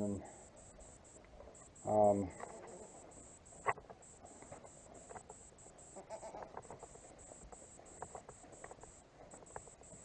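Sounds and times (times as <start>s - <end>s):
goats bleating faintly: 2.2s - 3.1s, 5.9s - 6.8s.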